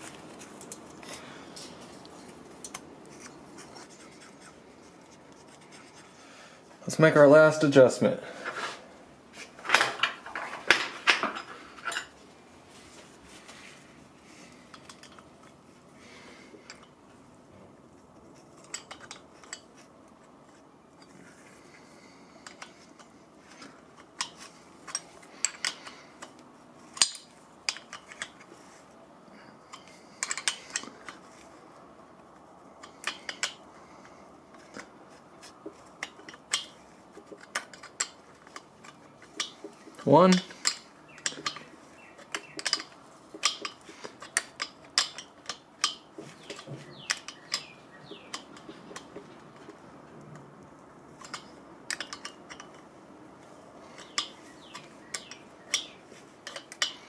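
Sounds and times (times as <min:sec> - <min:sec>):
wrenches clinking on metal nut: 0:22.4 - 0:28.5, 0:29.6 - 0:31.2, 0:32.8 - 0:34.9, 0:35.8 - 0:49.2, 0:51.1 - 0:52.9, 0:53.8 - 0:57.0.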